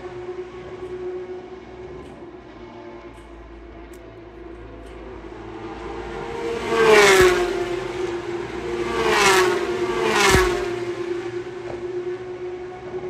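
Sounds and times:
race cars passing at speed: 0.0 - 13.0.

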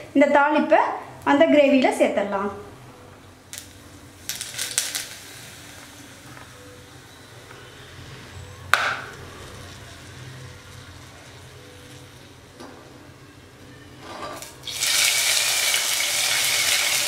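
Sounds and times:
hot oil crackling and sizzling: 3.5 - 7.2, 8.9 - 12.5, 14.4 - 17.0.

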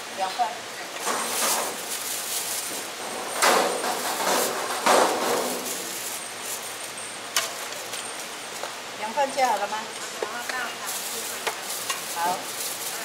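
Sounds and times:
plastic bag rustling: 1.0 - 8.6, 10.4 - 13.0.

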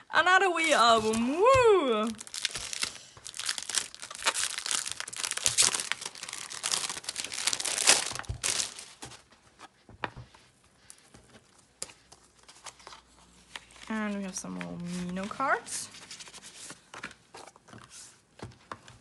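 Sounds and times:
plastic wrap crinkling and tearing: 0.6 - 9.2.

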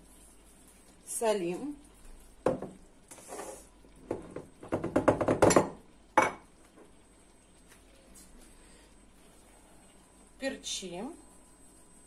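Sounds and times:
containers knocking: 4.1 - 6.3.

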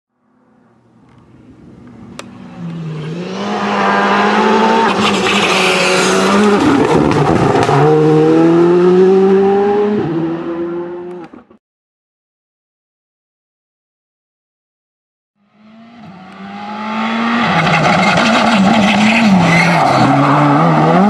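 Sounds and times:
rally car engine accelerating: 2.4 - 11.6, 15.6 - 21.0.

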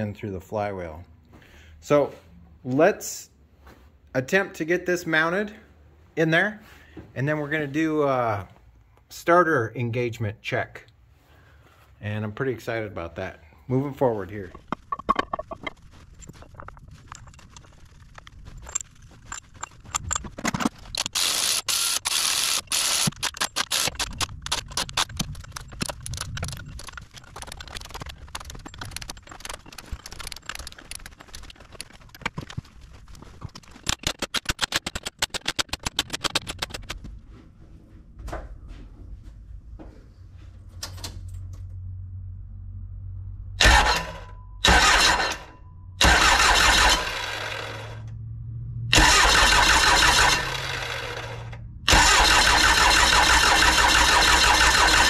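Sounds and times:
metallic tool clicks and clinks: 14.5 - 21.6
fast run of clicks: 14.5 - 37.2, 49.0 - 55.0.

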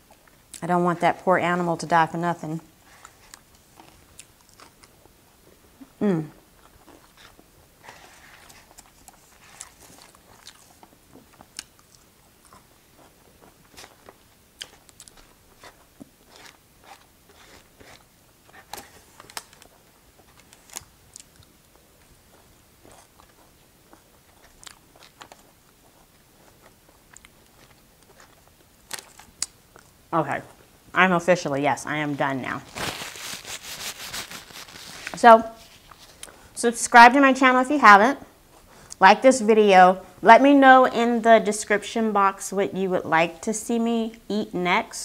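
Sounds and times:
chewing meat: 2.8 - 5.6, 6.3 - 30.1.

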